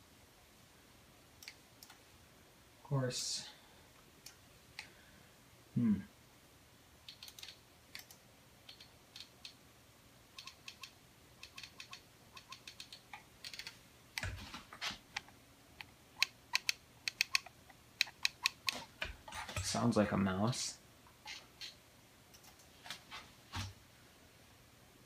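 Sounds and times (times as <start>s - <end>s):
computer mouse clicking: 1.4s - 2.0s, 7.0s - 9.6s, 10.4s - 14.4s, 15.1s - 18.9s, 21.2s - 22.7s.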